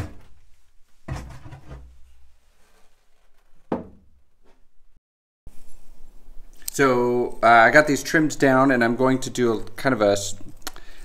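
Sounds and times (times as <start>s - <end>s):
cabinet door knocking against frame: 3.7s - 4.1s.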